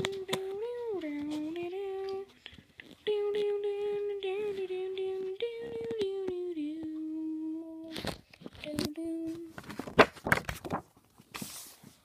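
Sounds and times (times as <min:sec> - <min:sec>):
person humming a tune: 0:00.0 - 0:09.6
paper rustling: 0:07.8 - 0:12.0.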